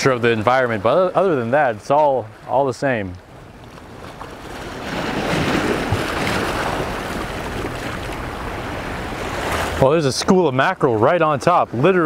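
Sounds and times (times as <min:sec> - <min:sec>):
waves washing against rocks: 0:03.7 - 0:12.0.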